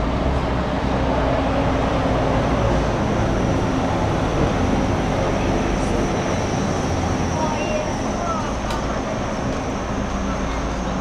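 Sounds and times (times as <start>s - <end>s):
bus engine running: 0.0s - 11.0s.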